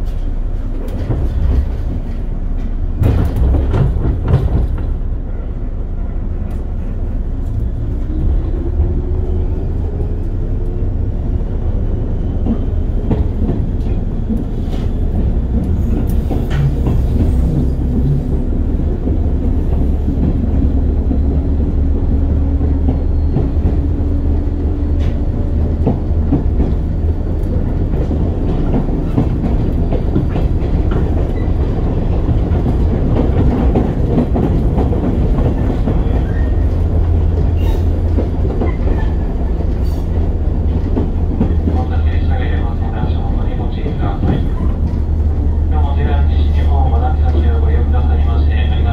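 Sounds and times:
rail joint clicks: 0.0s - 48.9s
train wheels rumbling on rail: 0.0s - 48.9s.

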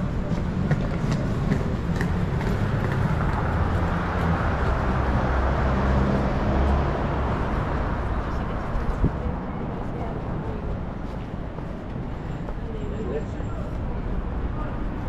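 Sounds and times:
traffic engine rumble: 0.0s - 15.0s
vehicle passing: 0.5s - 9.4s.

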